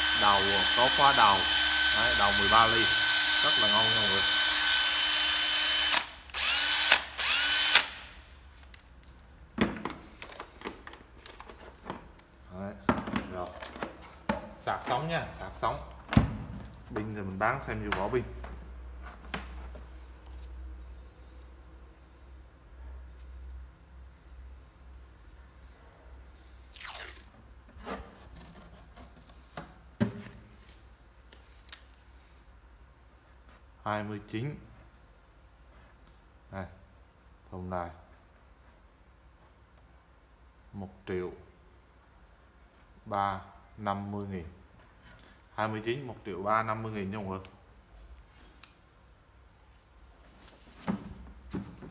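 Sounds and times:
cordless drill motor whining: 0.0 - 8.1
masking tape ripping off roll: 26.6 - 27.4.

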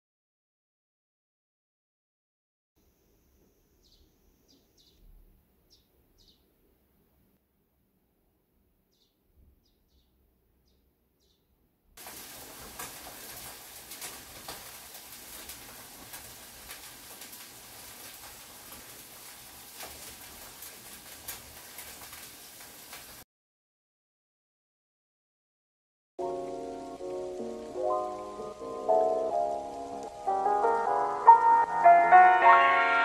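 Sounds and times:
birds chirping: 3.7 - 6.5, 8.9 - 11.5
steady rain patter: 12.0 - 23.2, 26.2 - 33.0.

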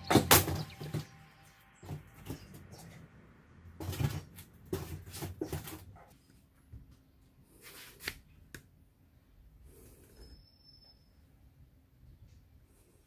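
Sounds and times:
handling knocks and rustles: 3.7 - 7.0.

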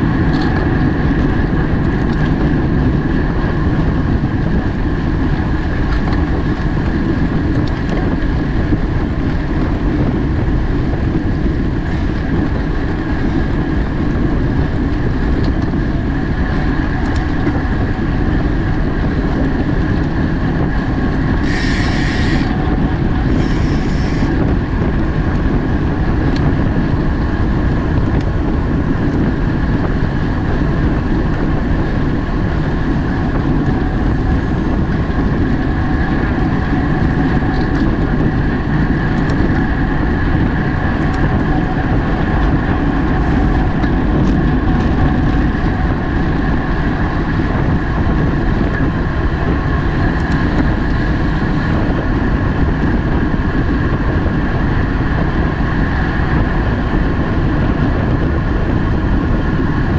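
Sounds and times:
wind rush and road noise: 0.0 - 59.9
short high hissing bursts: 21.5 - 22.4.

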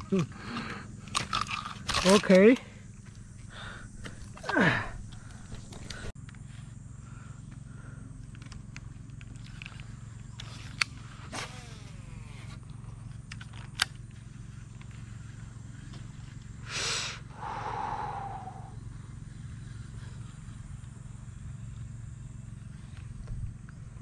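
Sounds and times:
fishing tackle clicks: 1.1 - 2.4.

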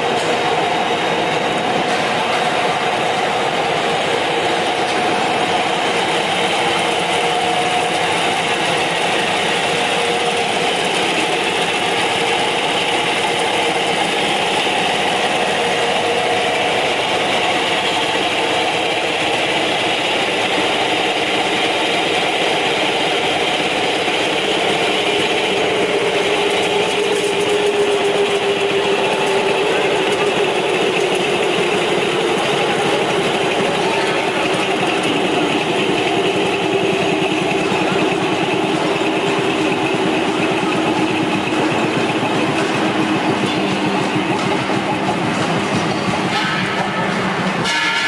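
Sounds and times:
workshop machinery running: 0.0 - 48.0.

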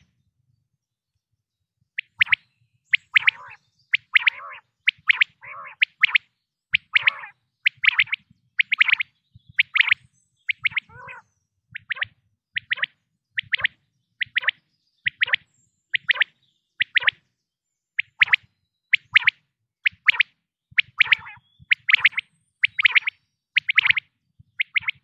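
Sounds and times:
quail calling: 2.0 - 15.4, 20.8 - 25.0.

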